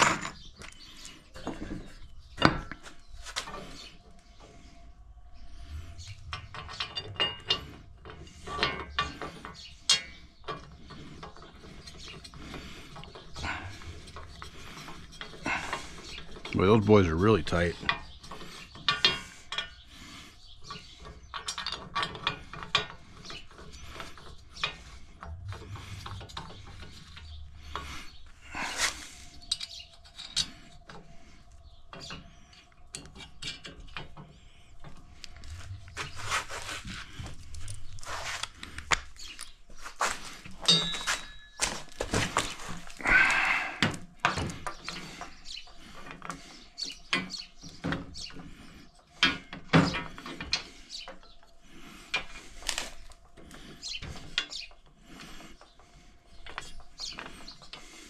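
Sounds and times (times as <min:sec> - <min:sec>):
metal hardware clicks and clinks: 0:06.2 - 0:12.4, 0:20.6 - 0:24.8, 0:40.5 - 0:43.0
metal rubbing: 0:20.6 - 0:30.9, 0:34.8 - 0:43.6.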